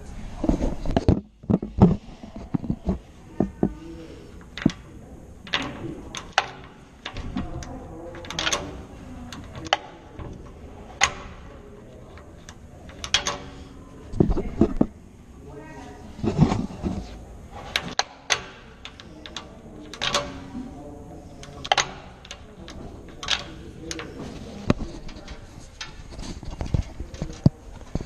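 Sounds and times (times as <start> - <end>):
knocks and clicks on metal lock: 4.4 - 13.8, 17.7 - 20.5, 21.4 - 27.5.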